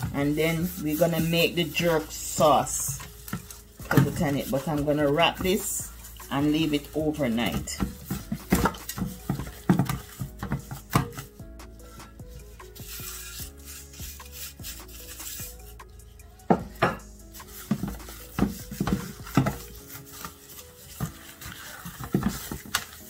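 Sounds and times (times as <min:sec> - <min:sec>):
hands rubbing meat: 0:00.0 - 0:15.9, 0:17.0 - 0:23.0
knocks and slaps on meat and pan: 0:07.7 - 0:11.4, 0:16.5 - 0:20.3, 0:21.8 - 0:23.0.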